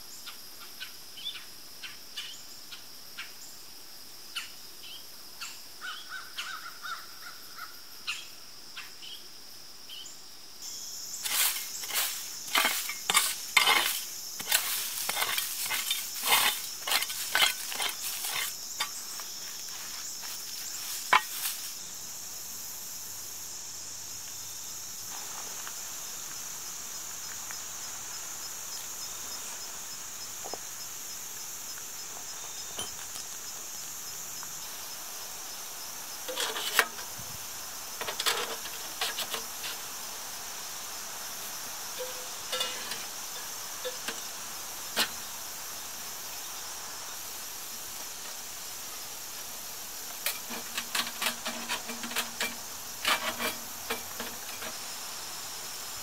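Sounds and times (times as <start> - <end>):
insect chorus: 0.0 - 56.0
stove pipes clinking: 11.2 - 19.0, 42.0 - 44.2, 50.2 - 54.8.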